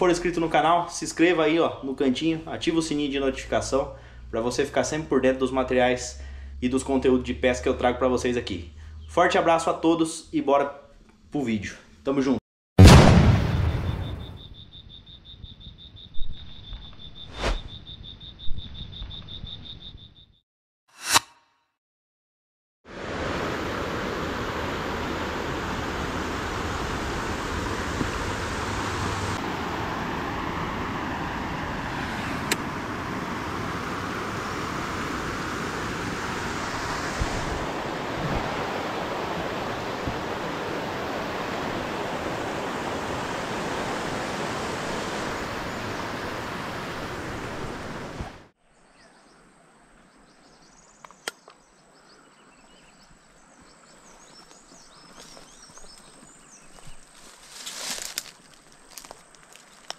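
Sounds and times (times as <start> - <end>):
quiet outdoor background: 0.0 - 21.8, 22.8 - 59.9
river water rushing over rapids: 22.9 - 48.4.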